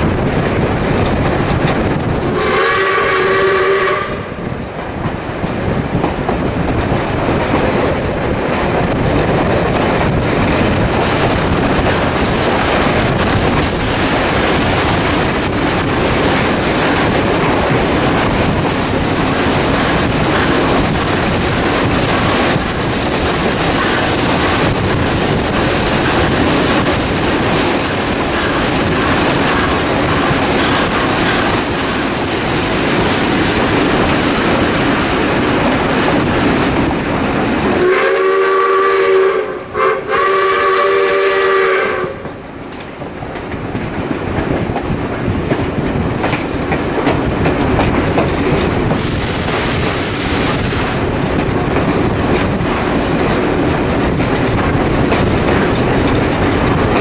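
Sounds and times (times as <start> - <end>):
train running: 0.0 - 57.0
steam whistle blasts: 2.3 - 4.3, 31.6 - 32.9, 37.8 - 42.2.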